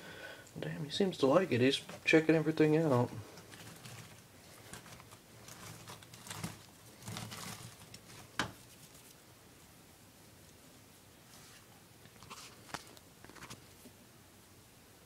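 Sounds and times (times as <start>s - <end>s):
lizard rustling on bark mulch: 1.1s - 9.2s.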